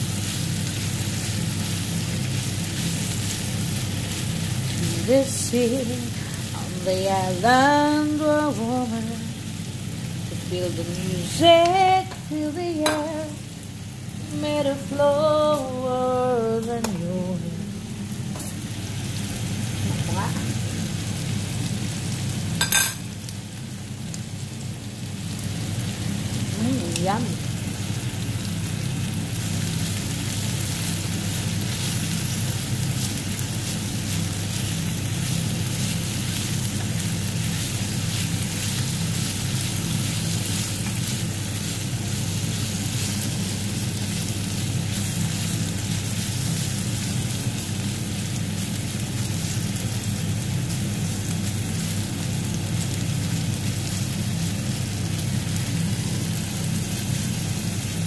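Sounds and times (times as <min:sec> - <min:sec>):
meat sizzling in a pan: 0:00.0 - 0:14.8, 0:17.8 - 0:58.0
low hum: 0:00.0 - 0:52.4
spatula turning food: 0:29.8 - 0:50.0.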